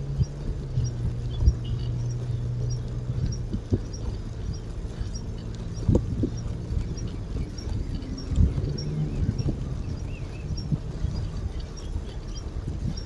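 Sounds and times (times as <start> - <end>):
bicycle rolling on asphalt: 0.0 - 13.0.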